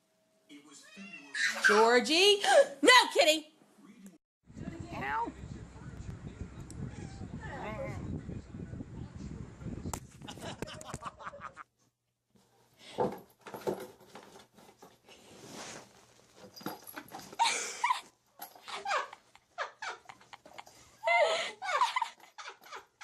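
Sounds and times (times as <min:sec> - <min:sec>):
small dog whining: 0:06.9 - 0:07.4
knocks and rustles: 0:12.4 - 0:15.0, 0:15.7 - 0:17.4.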